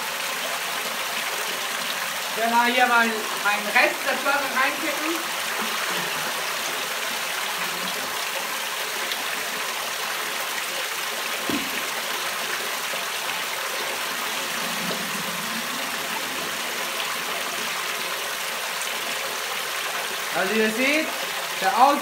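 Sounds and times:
water rushing and splashing: 0.0 - 22.0
short knock: 11.5 - 11.9.

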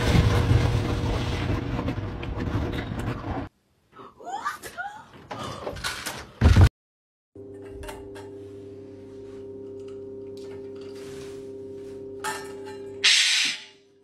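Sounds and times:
hum of held tones: 7.4 - 13.1.

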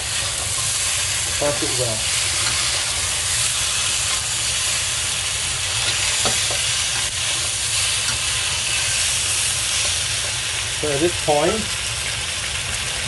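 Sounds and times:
spatula scraping a wok: 0.0 - 10.4
chicken sizzling in a wok: 0.0 - 13.0.

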